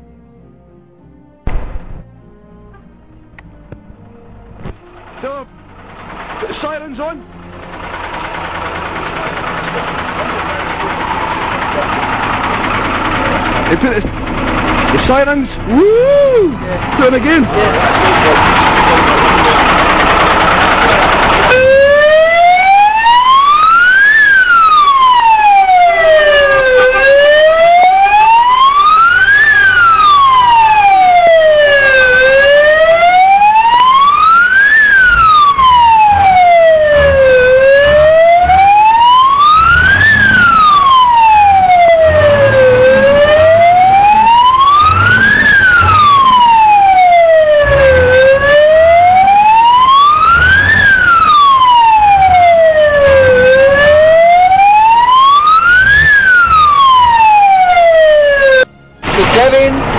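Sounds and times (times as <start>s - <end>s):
fire engine siren wailing: 4.8s - 59.9s
rushing noise: 55.8s - 59.9s
low rumble: 59.0s - 59.9s.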